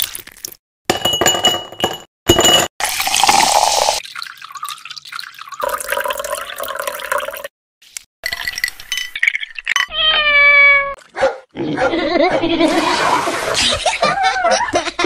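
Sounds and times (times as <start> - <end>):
ice cubes clinking in glass: 1.0 - 4.0, 8.2 - 9.9
liquid pouring over ice: 2.8 - 7.5.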